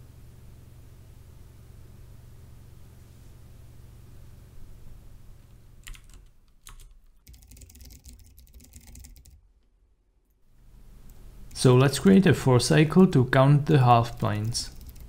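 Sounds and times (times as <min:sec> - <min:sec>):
low background hum: 0:00.0 - 0:15.0
computer keyboard typing: 0:05.8 - 0:09.4, 0:14.4 - 0:15.0.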